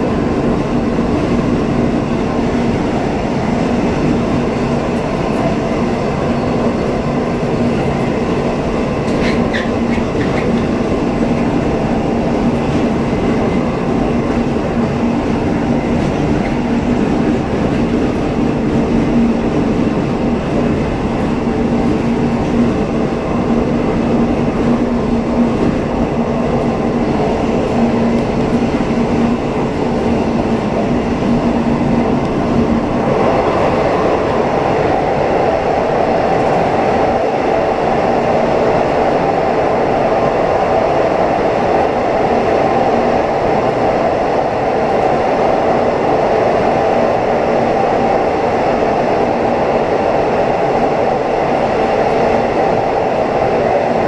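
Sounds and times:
train rumbling on rails: 0.0s - 54.0s.

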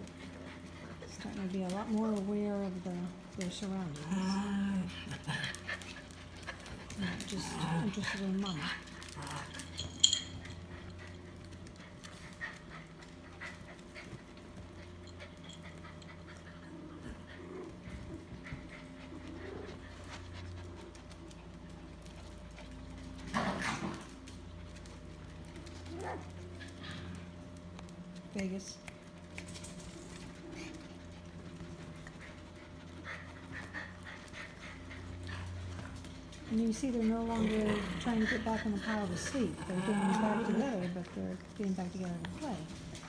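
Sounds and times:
puppies scuffling: 0.0s - 43.0s
dog panting: 4.8s - 23.2s, 30.0s - 43.0s.

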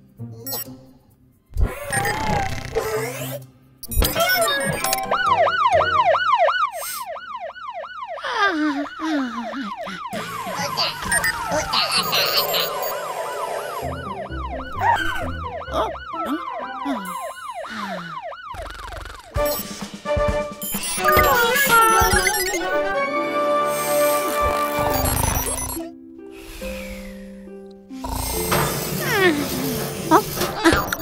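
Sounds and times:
cartoon siren wail: 4.1s - 19.4s, 20.9s - 22.8s.

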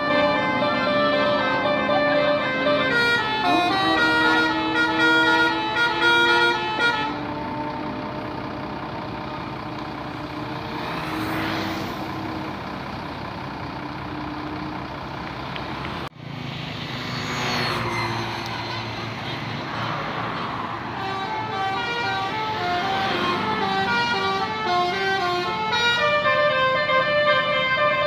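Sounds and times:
multi-note bus horn melody: 0.0s - 10.7s, 20.8s - 28.0s
bus engine running: 0.0s - 28.0s
passing traffic: 0.0s - 28.0s.

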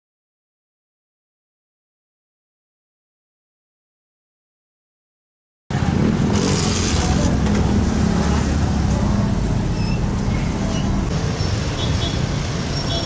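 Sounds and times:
motorcycle engines rumbling: 5.7s - 13.0s.

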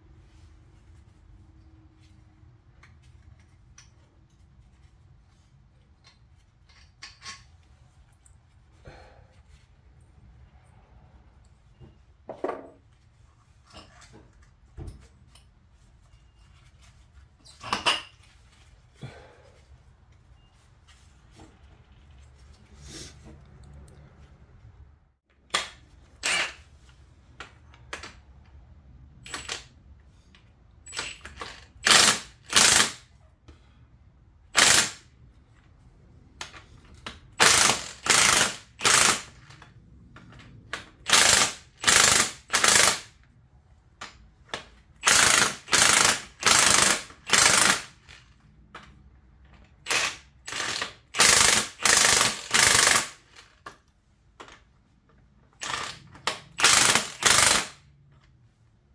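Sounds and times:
power wrench rattling bursts: 26.2s - 26.7s, 29.2s - 29.7s, 30.9s - 33.1s, 34.5s - 35.1s, 37.3s - 39.6s, 41.0s - 43.2s, 45.0s - 48.3s, 49.8s - 53.6s, 55.6s - 57.8s.

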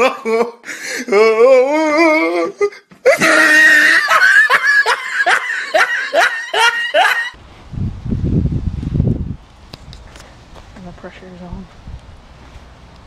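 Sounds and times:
high-pitched laughter: 3.1s - 7.4s
wind rumble on microphone: 7.4s - 13.0s.

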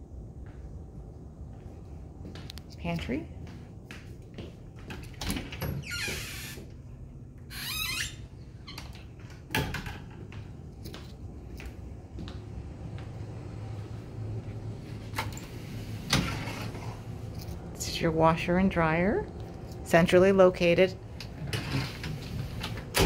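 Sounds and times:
closet door clicks and knocks: 9.5s - 10.2s
closet doors sliding scrapes: 15.2s - 17.2s, 21.4s - 23.0s.

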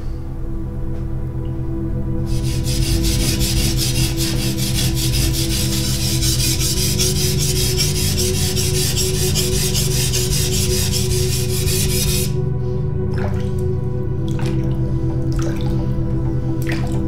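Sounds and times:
steady low tones: 0.0s - 17.0s
blade scraping on whetstone: 2.3s - 12.4s.

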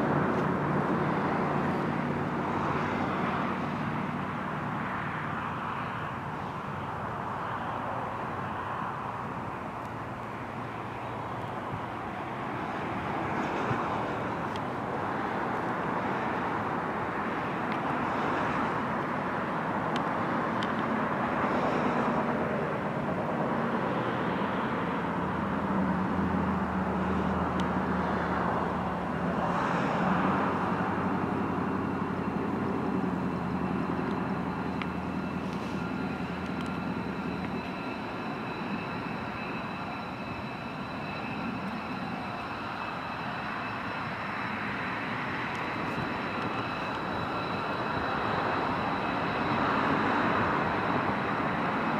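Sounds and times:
high engine whine: 0.0s - 51.9s
jet engines running: 0.0s - 51.9s.

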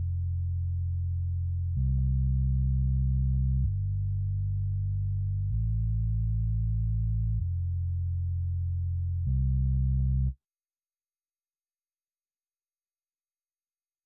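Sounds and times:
sub bass synth notes: 0.0s - 10.3s.

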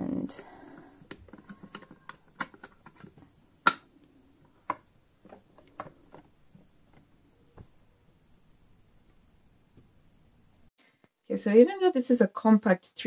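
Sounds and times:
plastic clicks and knocks: 1.0s - 3.9s.

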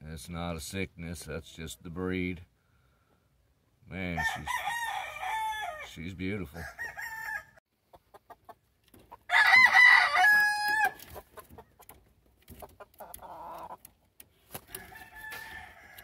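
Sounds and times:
rooster crowing: 4.2s - 5.8s, 6.6s - 7.6s, 9.3s - 11.0s, 14.7s - 16.0s.

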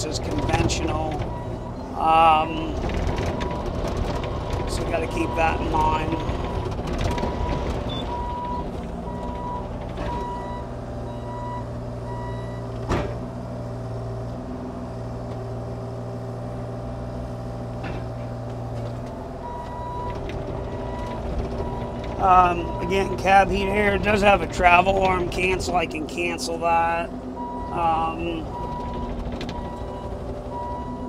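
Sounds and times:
diesel engine running: 0.0s - 31.0s
travel alarm beeping: 4.9s - 12.7s, 19.4s - 23.2s, 28.5s - 31.0s
sharp clunk: 12.8s - 13.3s.

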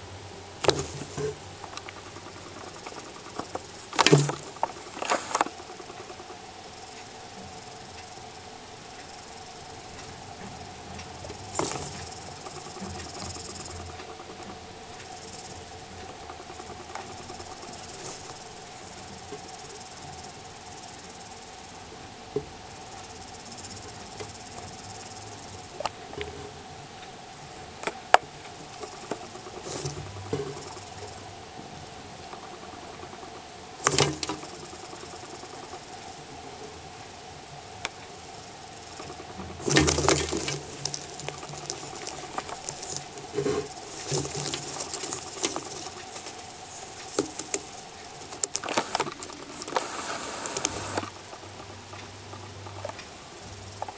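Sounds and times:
faint hiss with high hum: 0.0s - 53.9s
mouse moving on substrate: 0.6s - 6.3s, 11.0s - 19.5s, 27.8s - 31.3s, 38.7s - 51.1s
soft clicks and rustles: 0.6s - 8.2s, 37.5s - 53.9s.

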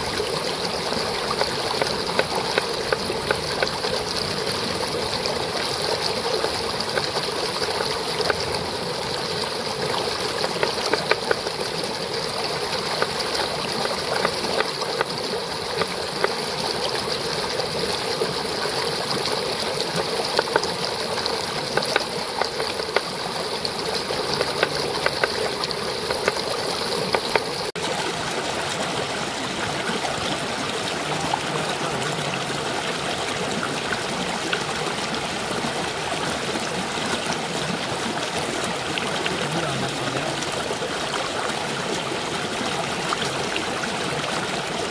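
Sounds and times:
stream running over stones: 0.0s - 44.9s
cleaver chopping on wooden board: 27.1s - 27.5s.

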